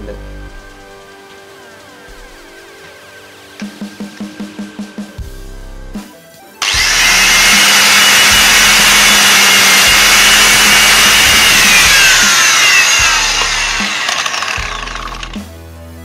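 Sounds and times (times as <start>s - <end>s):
angle grinder grinding plastic: 6.6s - 15.4s.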